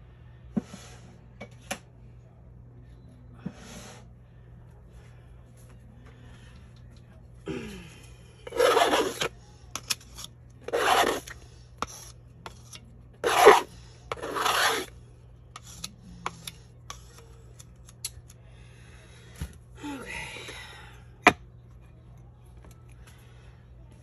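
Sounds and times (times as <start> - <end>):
tool scraping wet paint: 8.5 - 14.9.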